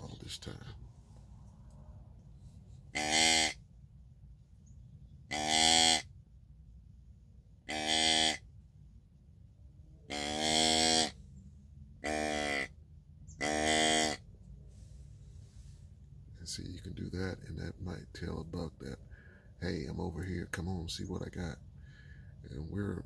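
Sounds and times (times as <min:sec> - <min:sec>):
deer grunt call: 0:02.9 - 0:03.6, 0:05.3 - 0:06.1, 0:07.7 - 0:08.5, 0:10.1 - 0:11.2, 0:12.0 - 0:12.8, 0:13.4 - 0:14.2.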